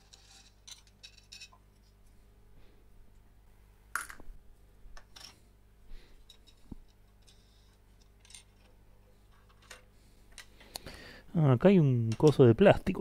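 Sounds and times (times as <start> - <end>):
metal parts clicking and scraping: 0.0 - 2.0, 6.2 - 10.6.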